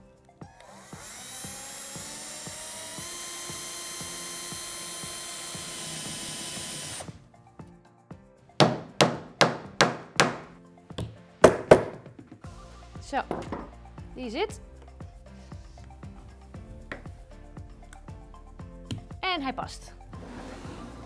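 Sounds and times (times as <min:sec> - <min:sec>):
cordless drill boring wood: 0:00.4 - 0:07.2.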